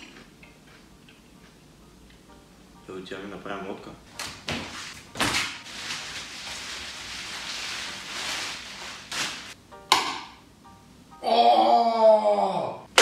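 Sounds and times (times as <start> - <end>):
cardboard sheet slapping on floor: 4.2 - 9.6
plastic sheeting thudding on cardboard: 4.2 - 9.6
rustling: 5.6 - 9.6.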